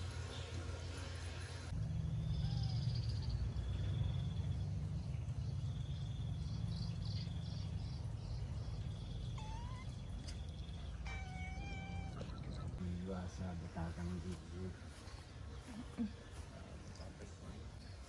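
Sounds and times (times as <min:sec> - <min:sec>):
pulsed insect calls: 0:01.7 - 0:12.6
insects trilling: 0:01.7 - 0:12.8
short rising bird chirp: 0:02.2 - 0:12.7.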